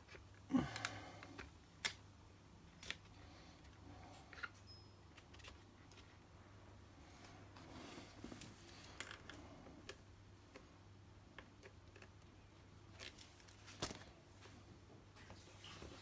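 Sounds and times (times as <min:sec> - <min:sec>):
clatter of pliers and small parts: 0:08.7 - 0:09.4.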